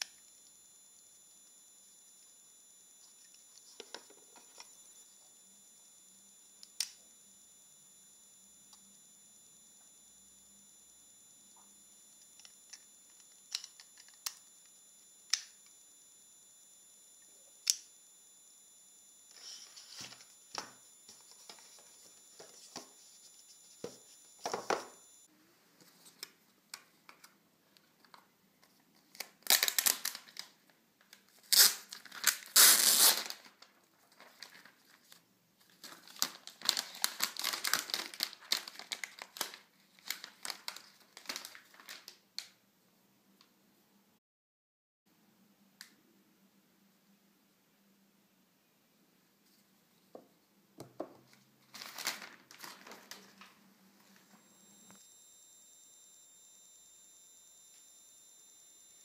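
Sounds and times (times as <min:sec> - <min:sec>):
packaging wrap crinkling and tearing: 0:29.0 - 0:42.5, 0:51.7 - 0:53.5.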